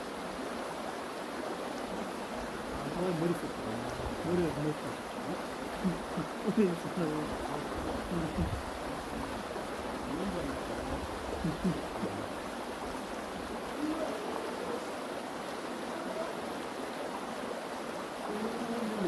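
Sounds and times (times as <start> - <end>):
water rushing: 0.0 - 19.0
faint voices: 2.7 - 9.1, 10.0 - 12.4, 13.6 - 15.1, 15.8 - 16.6.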